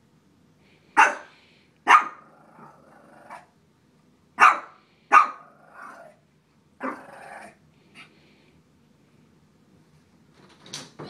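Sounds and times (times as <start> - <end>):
small dog barking: 1.0 - 2.4, 4.4 - 6.1, 6.8 - 7.0.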